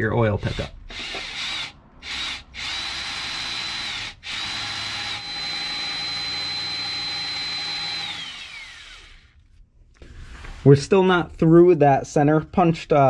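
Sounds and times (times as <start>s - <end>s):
power drill boring into metal: 0.4s - 9.3s.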